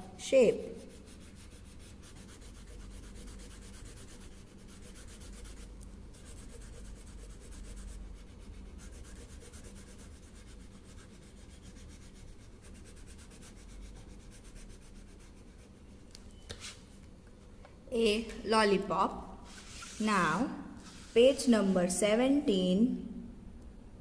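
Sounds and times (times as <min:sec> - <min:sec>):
wax crayon rubbing on paper: 0:00.4 - 0:16.0.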